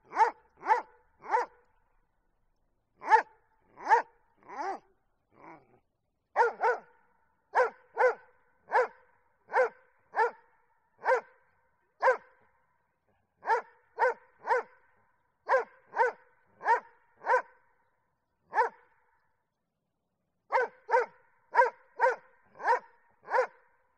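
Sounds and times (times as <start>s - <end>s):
dog barking: 0.0s - 1.7s, 3.0s - 5.7s, 6.4s - 11.4s, 12.0s - 12.4s, 13.4s - 17.6s, 18.5s - 19.1s, 20.5s - 23.7s.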